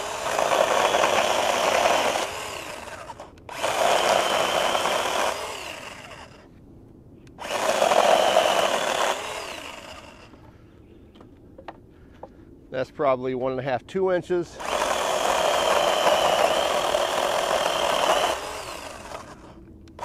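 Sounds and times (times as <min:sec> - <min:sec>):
electric chainsaw cutting branch: 0:00.0 - 0:06.5, 0:07.4 - 0:10.4, 0:14.6 - 0:20.0.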